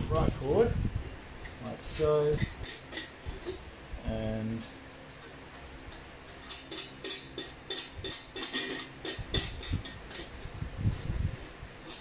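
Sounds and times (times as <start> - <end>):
steel panels clinking and rattling: 2.2 - 3.6, 5.1 - 10.5, 11.8 - 12.0.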